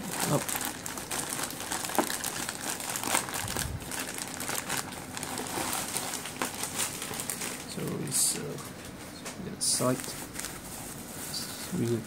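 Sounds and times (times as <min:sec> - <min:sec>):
plastic mailer bag crinkling: 0:00.0 - 0:08.6, 0:09.6 - 0:12.0.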